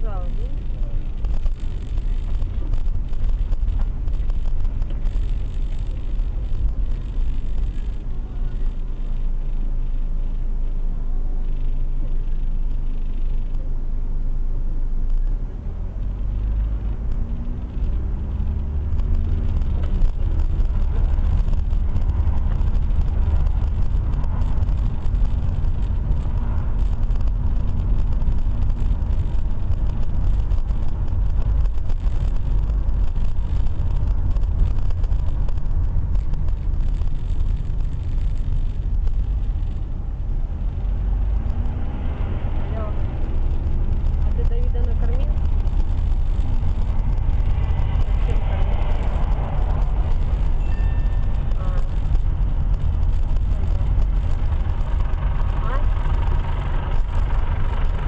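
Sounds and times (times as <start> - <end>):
car engine while driving: 0.0 - 58.0
road noise: 0.0 - 58.0.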